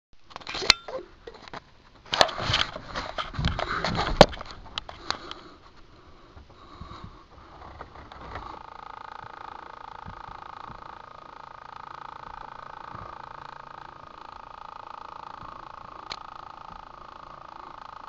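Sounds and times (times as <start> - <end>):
camera handling rustling: 0.3 - 5.4
sharp clicks: 11.7 - 17.0.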